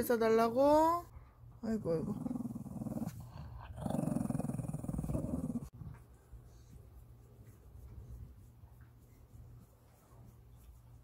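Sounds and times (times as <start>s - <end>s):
dog growling low: 1.8s - 5.7s.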